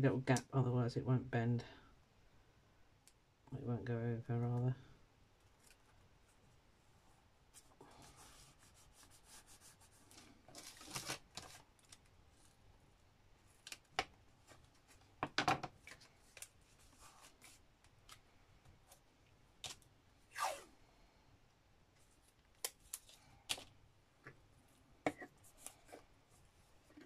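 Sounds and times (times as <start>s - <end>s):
paper rustling and scraping: 7.6s - 11.7s.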